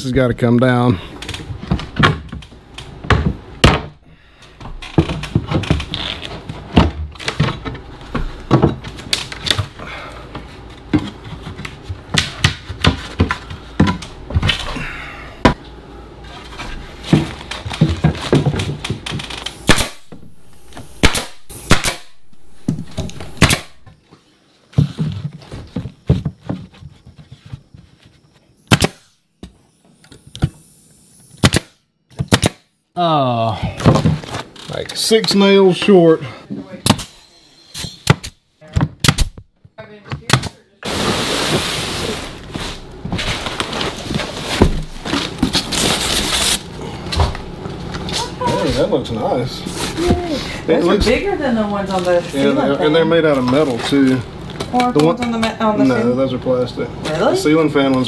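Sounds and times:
nail gun firing: 19.6 - 20.1, 21.0 - 22.2, 23.4 - 23.8, 28.7 - 29.1, 31.4 - 32.7.

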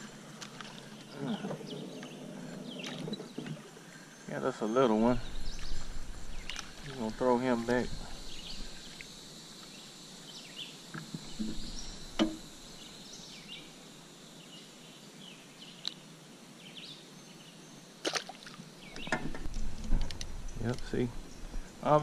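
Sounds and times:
sharp knock: 12.2 - 12.5.

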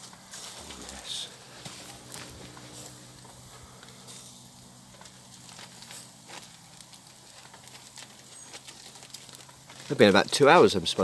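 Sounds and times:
campfire embers crackling: 0.0 - 11.0
soft hiss: 0.1 - 7.6.

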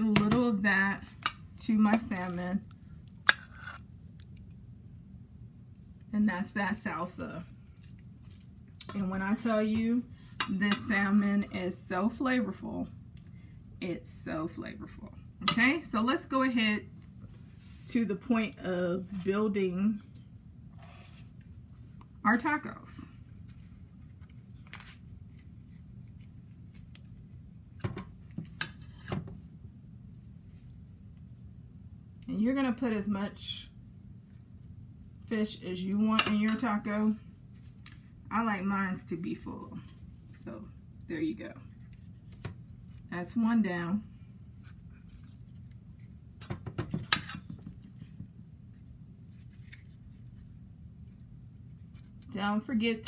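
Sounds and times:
steady low hum: 0.0 - 53.0
spoon scraping metal bowl: 3.3 - 3.9.

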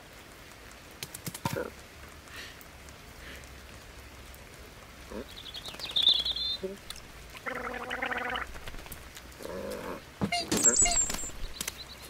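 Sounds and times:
rattling gargling call: 7.3 - 11.1
cartoon bird twittering: 10.3 - 11.3.

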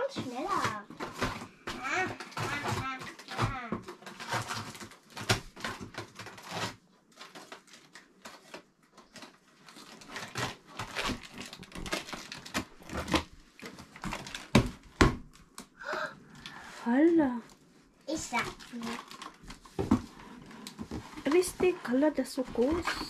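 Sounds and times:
cardboard box scraping and knocking: 0.0 - 6.7, 18.1 - 23.0.

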